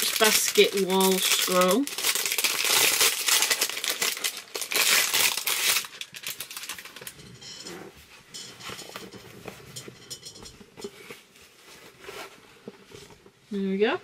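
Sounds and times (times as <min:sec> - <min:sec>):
packaging crinkling: 0:00.0 - 0:07.2.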